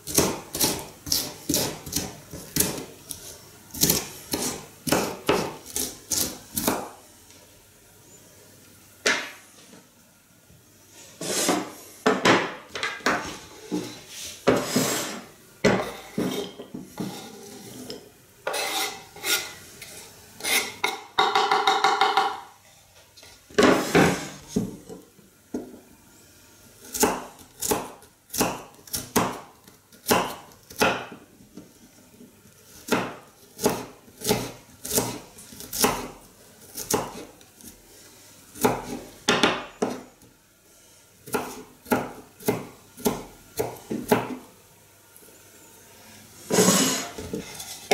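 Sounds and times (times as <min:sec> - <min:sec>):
knife chopping on wooden board: 0:00.1 - 0:02.9, 0:03.8 - 0:06.9, 0:26.9 - 0:29.4, 0:30.0 - 0:31.2, 0:32.9 - 0:36.1, 0:36.8 - 0:37.3, 0:41.3 - 0:44.4
knife scraping board: 0:00.1 - 0:06.8, 0:11.2 - 0:11.8, 0:13.2 - 0:20.9, 0:23.6 - 0:24.8, 0:46.5 - 0:47.9.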